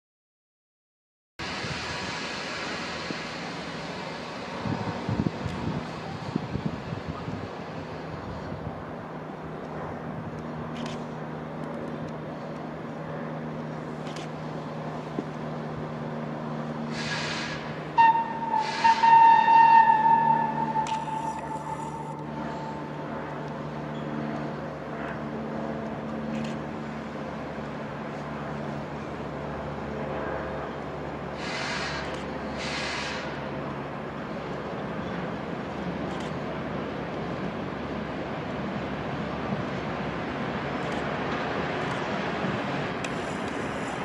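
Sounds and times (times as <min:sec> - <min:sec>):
electric locomotive humming: 0:01.4 - 0:44.0
high squeals: 0:18.0 - 0:22.7.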